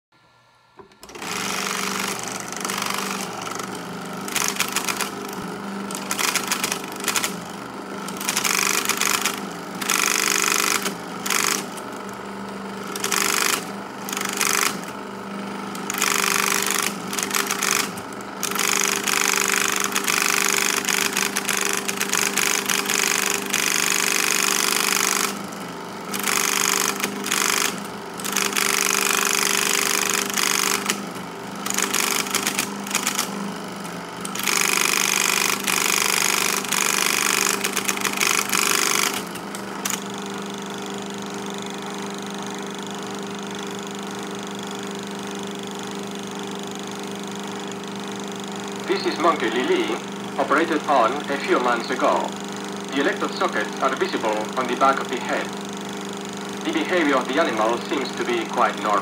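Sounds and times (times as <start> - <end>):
projector hum: 0.2 - 59.0
film projector clatter: 0.8 - 59.0.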